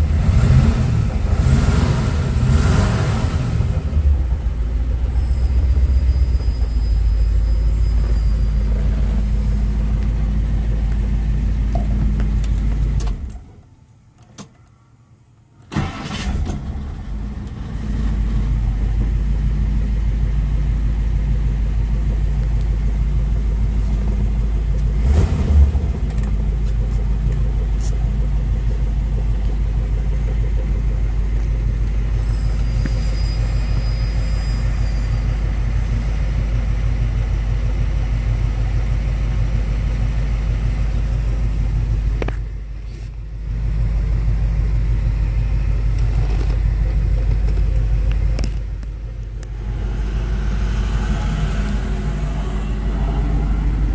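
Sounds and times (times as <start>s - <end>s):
car engine idling: 0.0s - 13.8s, 15.8s - 53.9s
engine cranking and starting: 15.7s - 19.2s, 45.3s - 53.9s.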